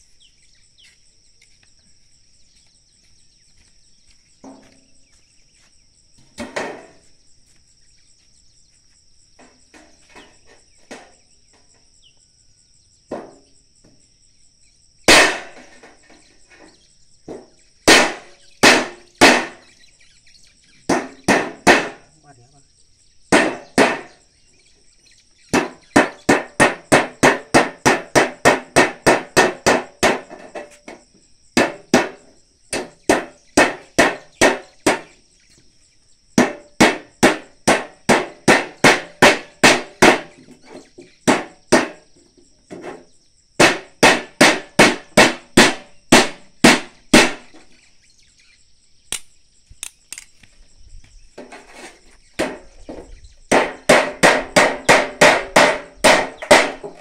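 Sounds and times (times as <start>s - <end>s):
hand tool striking gutter: 9.4s - 11.8s, 15.1s - 19.7s, 20.9s - 22.0s, 23.3s - 24.2s, 25.5s - 35.1s, 36.4s - 42.0s, 42.7s - 47.6s, 51.4s - 57.0s.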